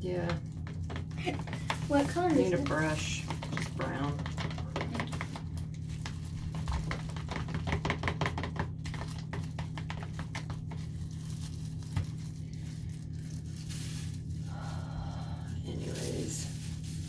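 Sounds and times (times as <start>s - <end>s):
gloved hands tapping plastic bowl: 0.0s - 10.9s
steady low hum: 0.0s - 17.0s.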